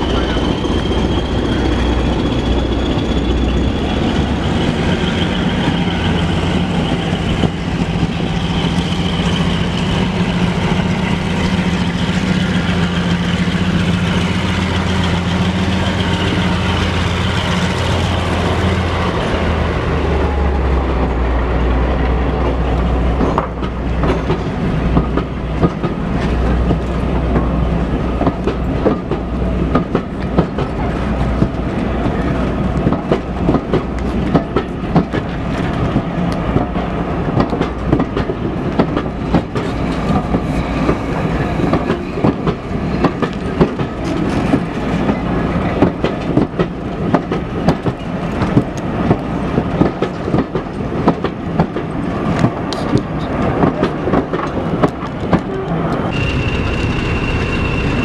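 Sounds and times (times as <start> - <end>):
train wheels rumbling: 0.0 - 58.0
clicks and knocks from track: 45.8 - 56.2.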